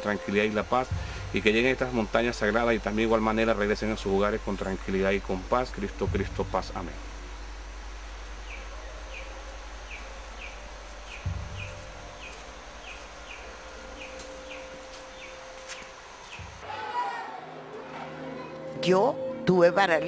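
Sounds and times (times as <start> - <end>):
insects hissing: 0.0 - 17.2
dull low thump: 0.9 - 2.2, 6.0 - 15.3.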